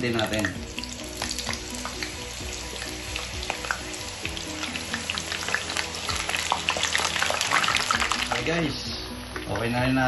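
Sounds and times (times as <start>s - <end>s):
potatoes deep-frying in oil: 0.0s - 10.0s.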